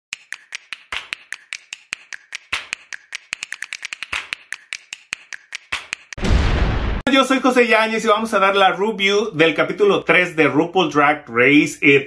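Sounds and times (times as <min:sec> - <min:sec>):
percussion beat of clicks and snaps: 0:00.1 - 0:06.2
fuller percussion hit: 0:06.2 - 0:07.0.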